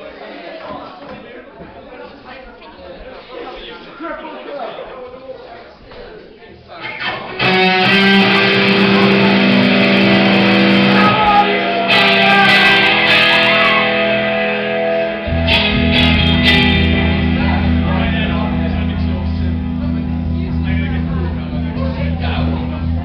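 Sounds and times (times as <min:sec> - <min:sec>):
electric guitar chords: 0:06.9 - 0:23.0
live rock band playing: 0:07.0 - 0:21.6
deep low end: 0:13.8 - 0:23.0.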